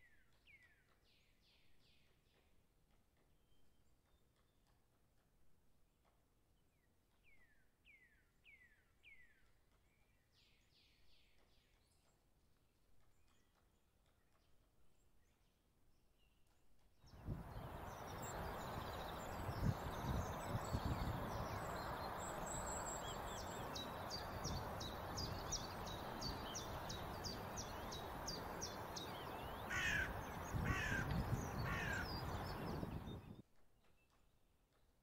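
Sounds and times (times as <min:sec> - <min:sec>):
wild birds calling: 0:17.5 - 0:33.3
harsh caw-like calls: 0:29.7 - 0:32.3.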